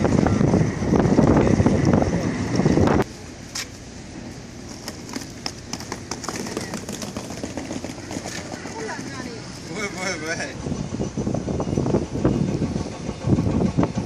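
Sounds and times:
wind on microphone: 0.0 - 3.1, 6.6 - 14.0
loud rumble with clatter: 4.6 - 14.0.

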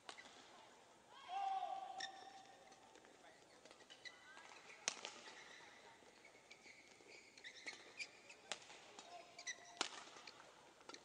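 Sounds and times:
shoes squeaking on floor: 3.6 - 11.0
rackets striking shuttlecock: 9.7 - 11.0.

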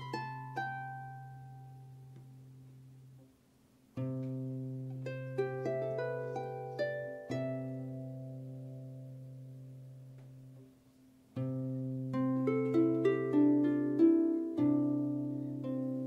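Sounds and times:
harp chords and plucked notes: 0.0 - 2.4, 4.0 - 10.6, 11.4 - 16.0.

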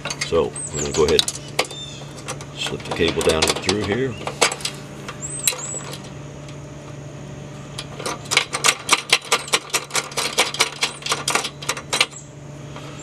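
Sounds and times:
small metal clicks: 7.7 - 12.2.

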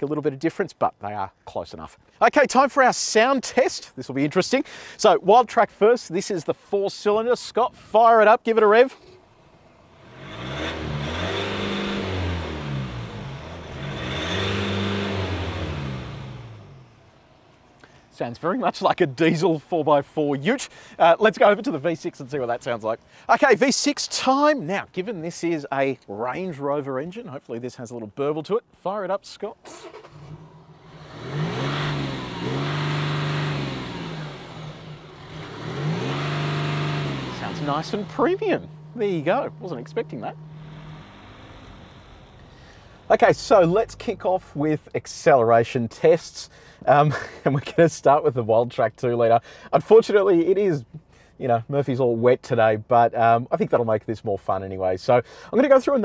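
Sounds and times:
diesel engine revving: 9.7 - 17.5, 29.6 - 45.0.

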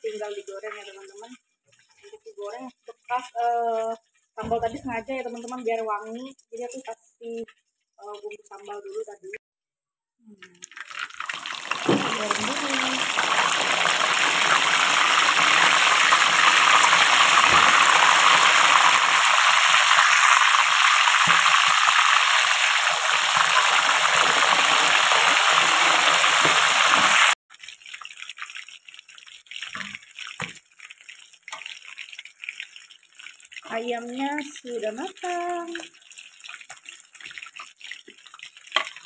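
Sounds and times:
frying crackling: 0.0 - 9.1, 10.5 - 39.0
oil sizzling: 10.5 - 39.0.

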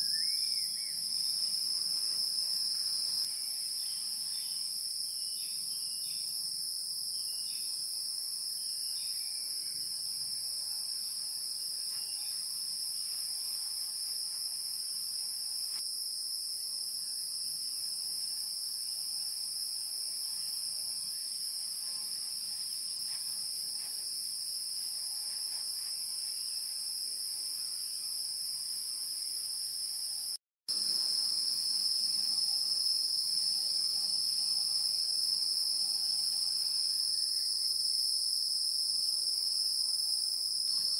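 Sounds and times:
shrill insect chorus: 0.0 - 40.9.

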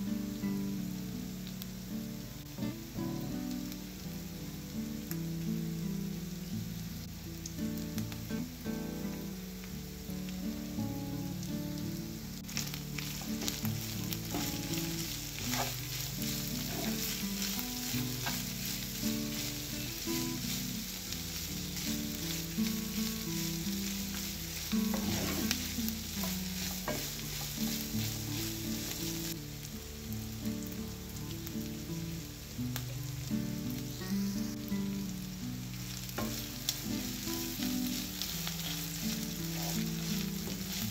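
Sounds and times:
meat sizzling in frying pan: 0.0 - 40.9
wooden spoon scraping: 12.6 - 29.4, 36.2 - 40.9.

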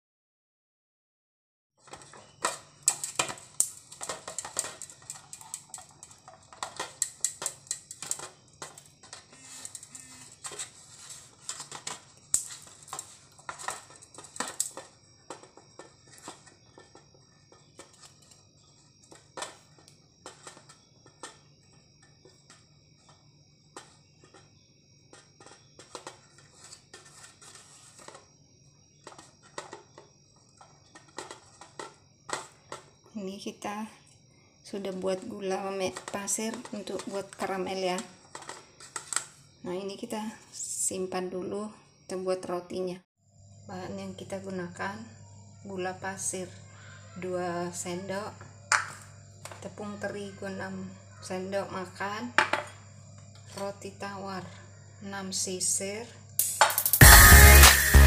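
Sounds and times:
wooden spoon scraping metal pan: 1.9 - 18.4, 25.1 - 28.3.

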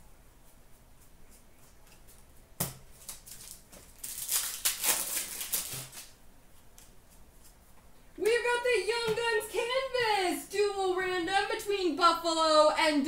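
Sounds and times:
cards rustling: 2.9 - 6.2.

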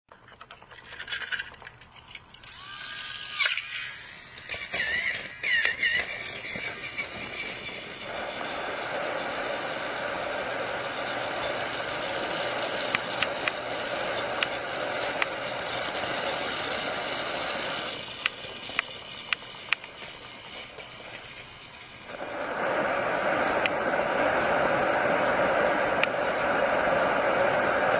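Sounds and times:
sharp clicks on plastic track: 0.1 - 2.6, 3.3 - 8.0, 11.2 - 21.5
toy train motor whir: 0.2 - 27.9.

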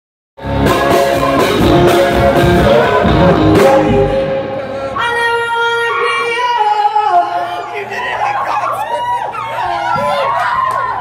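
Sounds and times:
live rock band playing: 0.4 - 5.4
woman singing: 5.0 - 7.5.

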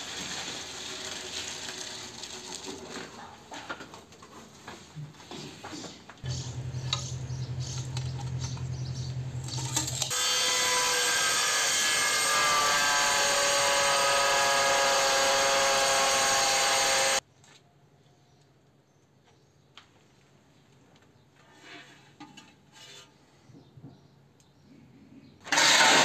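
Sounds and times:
low steady hum: 6.2 - 10.1
angle grinder cutting tile: 9.4 - 17.2, 25.5 - 26.0.

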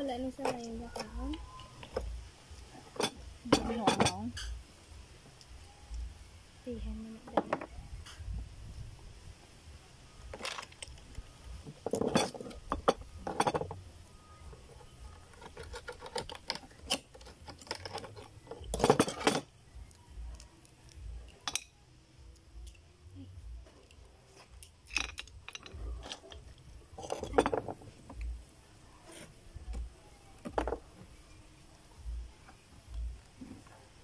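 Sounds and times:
oyster shells clinking and scraping: 11.8 - 13.8, 15.3 - 19.5, 24.6 - 27.9.

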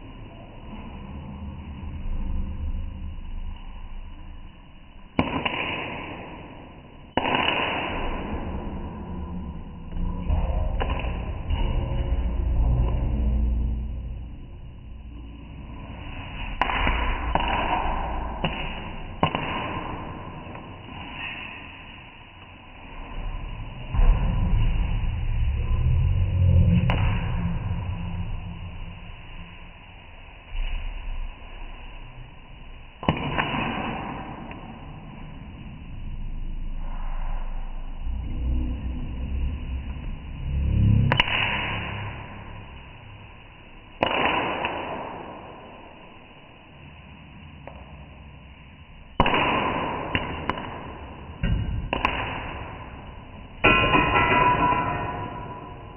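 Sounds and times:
low rumble: 0.0 - 5.2, 7.9 - 33.2, 34.4 - 44.0.

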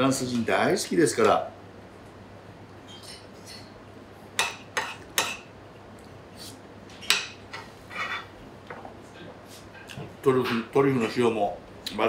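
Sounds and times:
spoon scraping a plate: 7.0 - 8.3.

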